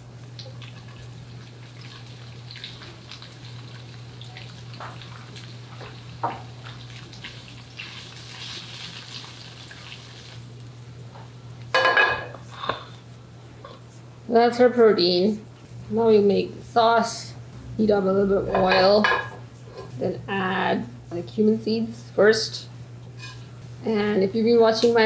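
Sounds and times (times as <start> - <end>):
steady low hum: 0.0 - 8.3, 10.4 - 25.0
tofu sizzling in a pan: 1.6 - 10.6
spatula knocking and scraping pan: 18.5 - 19.4.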